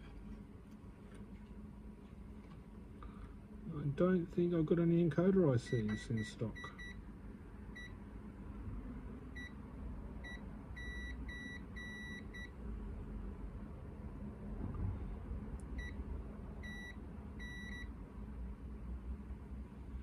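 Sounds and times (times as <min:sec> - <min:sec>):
low steady hum: 0:00.0 - 0:20.0
multimeter short beeps: 0:05.7 - 0:07.0.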